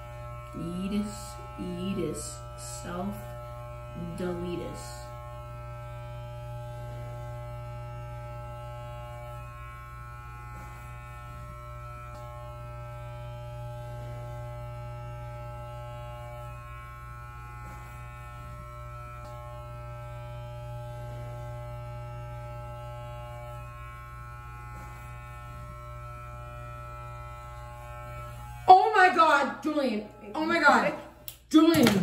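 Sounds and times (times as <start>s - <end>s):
electric hair clippers buzzing: 0.0s - 32.0s.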